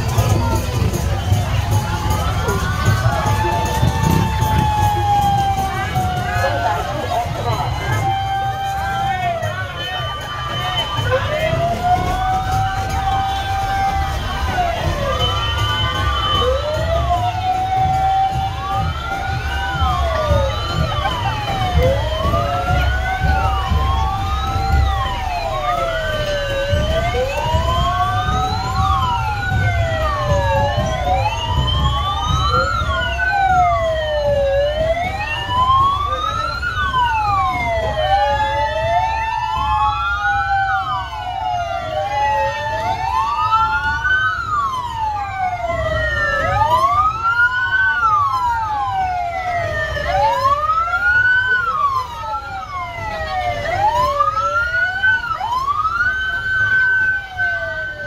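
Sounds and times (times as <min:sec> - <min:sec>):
fire truck sirens wailing: 0:00.0 - 0:58.0
truck engines rumbling: 0:00.0 - 0:58.0.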